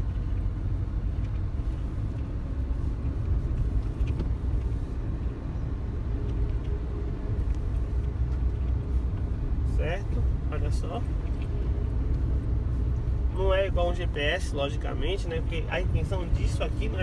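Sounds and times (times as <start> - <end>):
car engine rumble: 0.0 - 17.0
road noise: 0.0 - 17.0.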